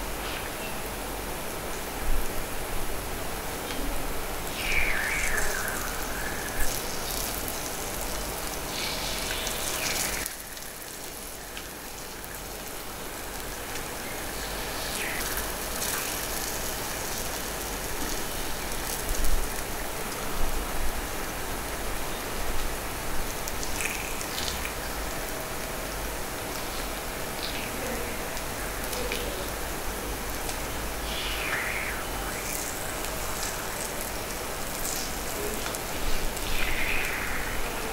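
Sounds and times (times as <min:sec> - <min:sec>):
batter sizzling in a pan: 0:04.6 - 0:19.6.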